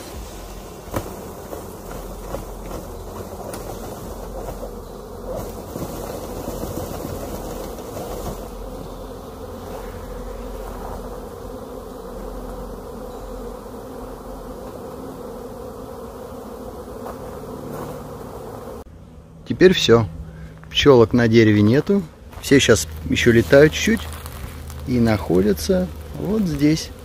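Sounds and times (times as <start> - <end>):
honey bees buzzing: 0.0 - 27.0.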